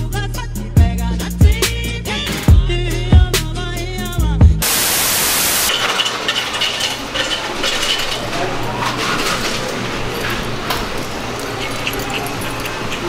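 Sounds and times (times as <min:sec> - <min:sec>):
dishes and cutlery clattering: 0:05.7 - 0:13.0
murmur of voices: 0:06.7 - 0:13.0.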